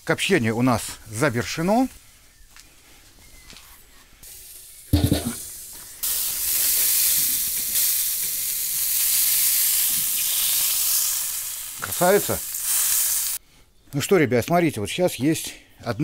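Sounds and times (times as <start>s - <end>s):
sizzling hiss: 4.2s - 13.4s
smoker lid thump: 4.9s - 5.5s.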